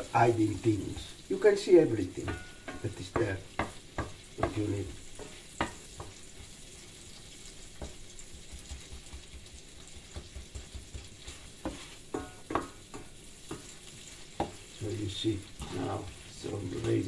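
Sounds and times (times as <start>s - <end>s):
food sizzling in pan: 0.0s - 17.0s
wooden spoon stirring in pan: 0.0s - 17.0s
spoon knocking against pan: 2.2s - 6.2s, 7.7s - 13.8s, 14.4s - 14.6s.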